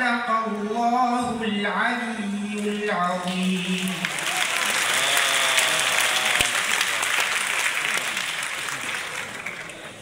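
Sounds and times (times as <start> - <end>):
audience applauding: 3.2 - 10.0.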